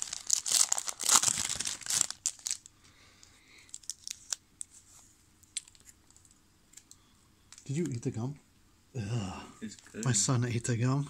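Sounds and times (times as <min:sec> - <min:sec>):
wrapper crinkling and tearing: 0:00.0 - 0:02.7, 0:03.6 - 0:04.7.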